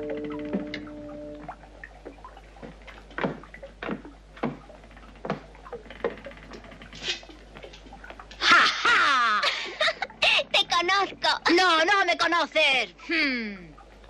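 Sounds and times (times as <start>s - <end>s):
footsteps on wooden stairs: 0.5s - 0.9s, 2.0s - 6.2s.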